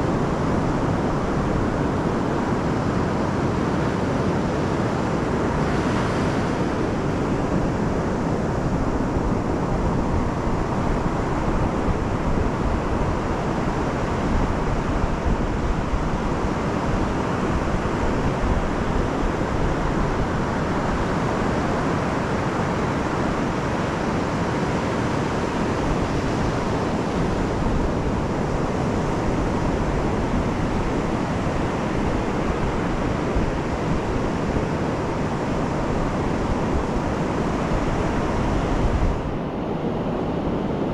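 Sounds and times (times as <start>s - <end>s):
surf breaking on sand beach: 0.1s - 39.5s.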